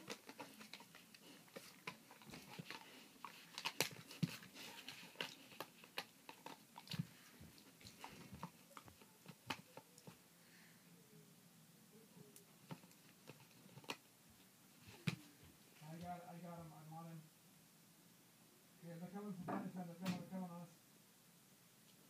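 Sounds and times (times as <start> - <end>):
puppy gnawing a bone: 0.0 - 10.2, 12.5 - 14.0.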